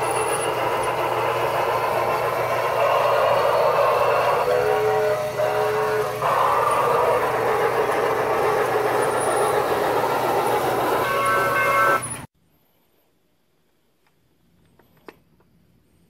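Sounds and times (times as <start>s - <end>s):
toy steam whistle chord: 0.0s - 12.3s
toy train running on track: 0.0s - 12.3s.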